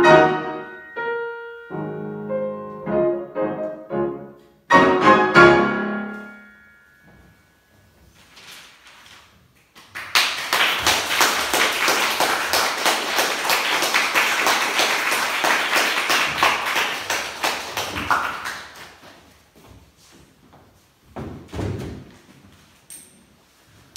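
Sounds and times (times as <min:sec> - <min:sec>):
audience applauding: 0:09.8 - 0:19.1.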